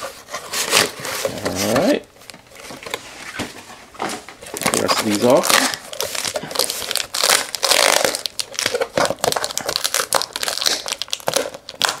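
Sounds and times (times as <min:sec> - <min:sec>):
plastic wrappers crinkling: 0:04.0 - 0:12.0.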